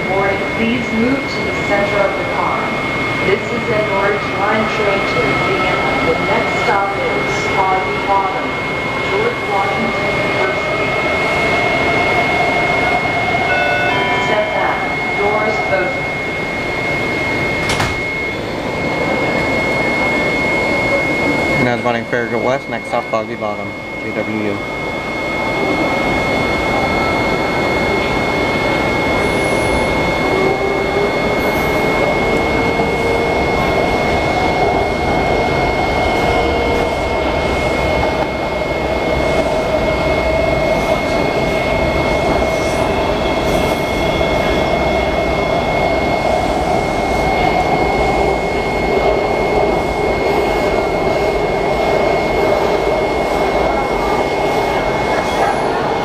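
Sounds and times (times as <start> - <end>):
train motor whine: 0.0 - 23.1, 23.8 - 56.0
thin high tone: 13.4 - 18.5
train wheels rumbling on rail: 25.5 - 56.0.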